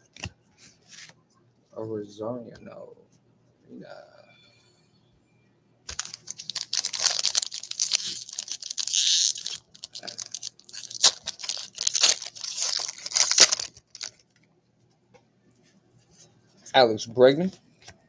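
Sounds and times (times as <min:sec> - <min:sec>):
foil wrapper tearing and crinkling: 0:05.9 - 0:14.3.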